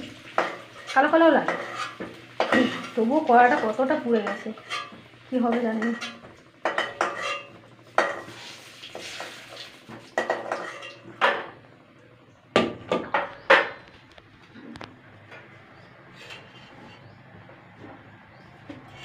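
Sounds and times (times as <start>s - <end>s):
metal spatula clanking on pan: 0.0s - 8.4s, 9.0s - 11.6s.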